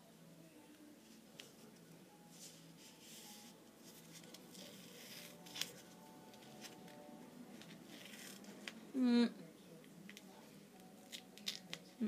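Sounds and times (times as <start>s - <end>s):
tape rustling and crackling: 1.3s - 8.8s, 10.0s - 12.0s.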